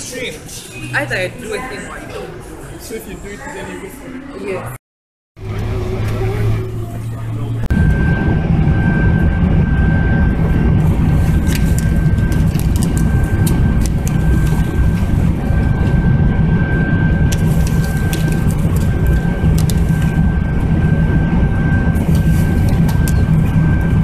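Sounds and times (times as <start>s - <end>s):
airliner cabin low rumble: 5.4s - 24.0s.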